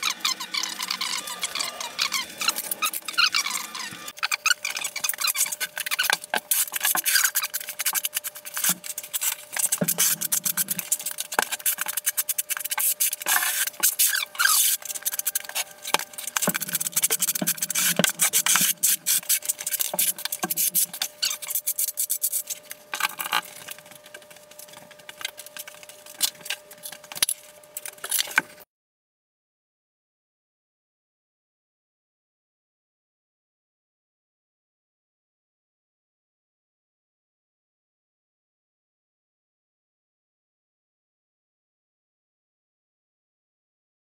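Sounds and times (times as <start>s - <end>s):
trowel scraping mortar on concrete: 0.6s - 23.8s.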